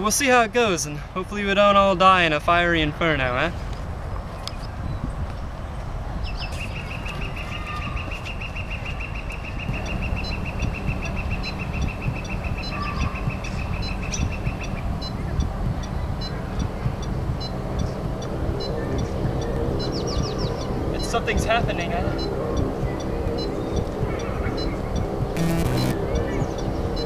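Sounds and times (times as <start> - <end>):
higher electronic ticks: 9.8 - 19.9, 24.9 - 26.3
fast high electronic beeps: 25.4 - 26.0.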